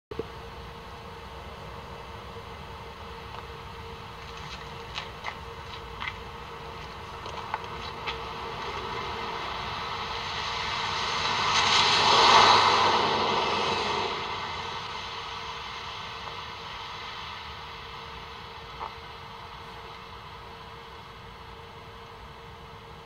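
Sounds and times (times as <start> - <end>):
vehicle passing by: 7.4 - 15.7.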